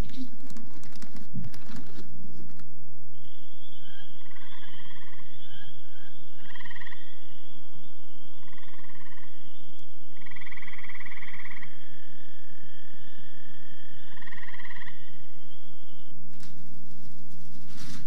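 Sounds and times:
frogs trilling: 3.2 - 16.2
high-pitched frog chorus: 3.2 - 16.2.

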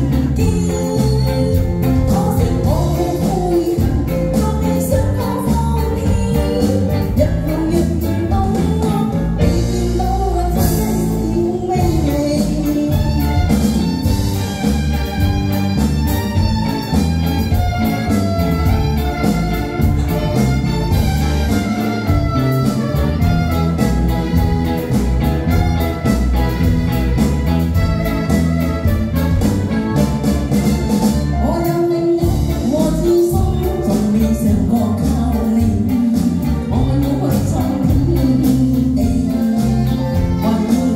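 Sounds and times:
woman singing into a microphone: 0.0 - 13.5, 31.2 - 40.9
live band playing pop song: 0.0 - 40.9.

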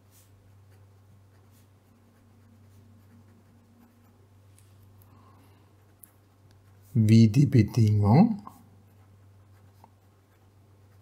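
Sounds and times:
pen scratching on paper: 0.0 - 4.2, 5.7 - 7.1, 8.9 - 11.0
steady low hum: 0.0 - 11.0.

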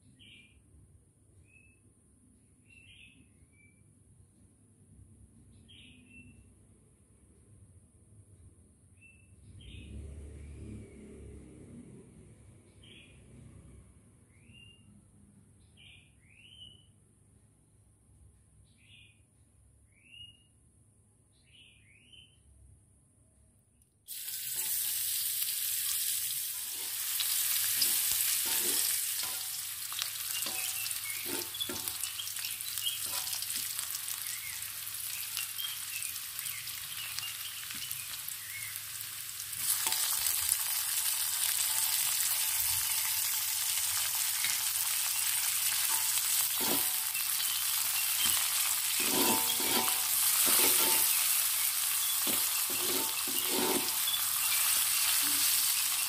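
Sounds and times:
frying in oil sizzling: 24.1 - 56.0
metal spatula scraping a pan: 24.4 - 36.1, 39.6 - 56.0.

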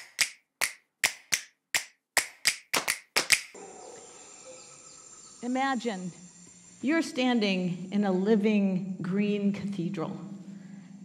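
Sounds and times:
sharp snapping clicks: 0.0 - 3.6
high insect drone: 3.6 - 11.0.

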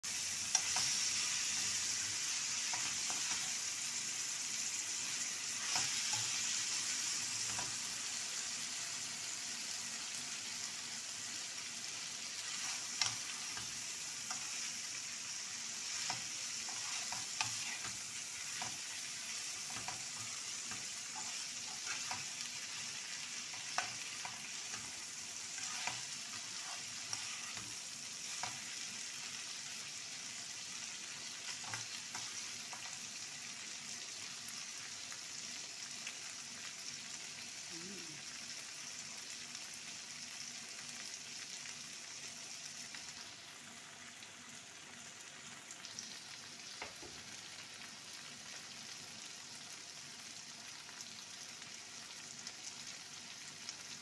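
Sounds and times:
vegetables sizzling in a pan: 0.0 - 54.0
spatula scraping a pan: 5.2 - 6.8, 12.3 - 14.8, 15.6 - 28.9.

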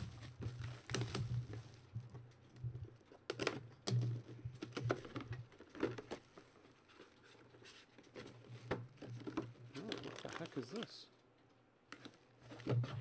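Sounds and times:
cardboard flaps rustling: 0.0 - 1.9
plastic wrap crackling and tearing: 9.7 - 11.0.

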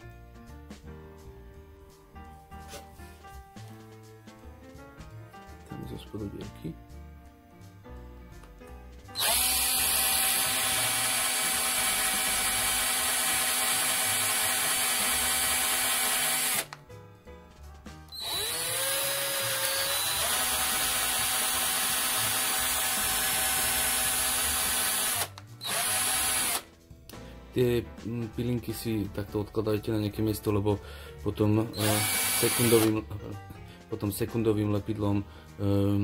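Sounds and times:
electric drill whining: 9.2 - 16.8, 18.1 - 26.7, 31.8 - 33.0.

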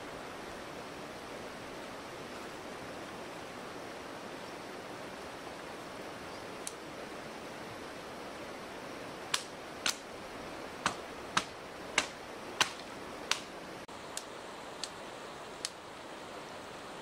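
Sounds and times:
shallow stream rushing: 0.0 - 17.0
dry sticks snapping: 9.3 - 10.0, 10.8 - 13.5.

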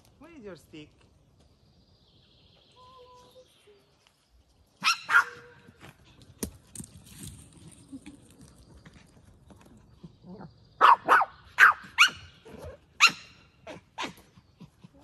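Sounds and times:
small dog barking: 4.8 - 5.6, 10.8 - 14.2.

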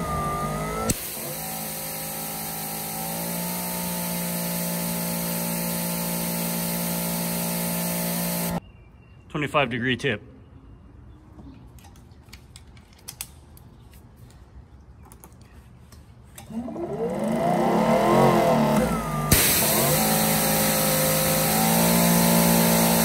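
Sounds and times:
pressure washer motor whine: 0.0 - 8.6, 16.6 - 23.0
high-pressure water spraying hiss: 1.0 - 8.6, 19.3 - 23.0.

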